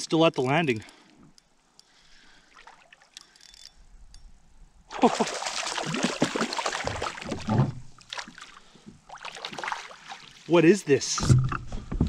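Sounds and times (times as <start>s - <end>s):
fish splashing in water: 4.9s - 10.5s.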